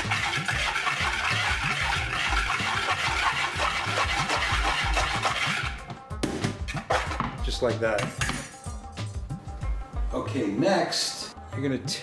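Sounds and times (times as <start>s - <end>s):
whisk scraping through powder: 0.0s - 5.9s.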